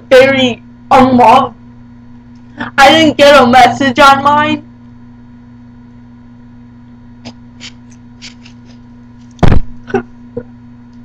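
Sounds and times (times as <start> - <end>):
electrical hum: 0.0 - 11.0
loud sudden bump: 9.4 - 9.8.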